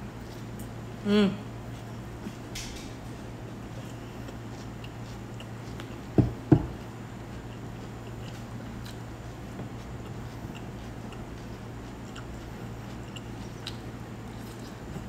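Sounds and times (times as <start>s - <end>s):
steady low hum: 0.0s - 15.0s
wet chewing mouth sounds: 1.6s - 15.0s
dull thumps: 6.1s - 6.8s.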